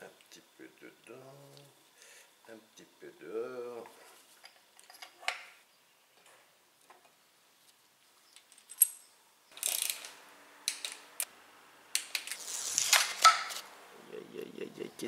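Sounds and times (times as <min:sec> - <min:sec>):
metal parts and tools rattling: 0:08.4 - 0:10.1
ratchet clicking: 0:09.6 - 0:10.1.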